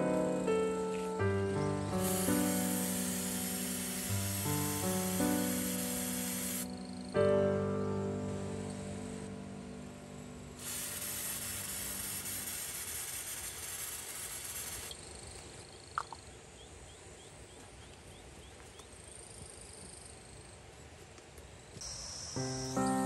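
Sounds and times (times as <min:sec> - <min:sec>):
background music: 0:00.0 - 0:11.9, 0:22.4 - 0:23.0
aerosol spray can hissing: 0:00.4 - 0:06.7, 0:10.6 - 0:15.0.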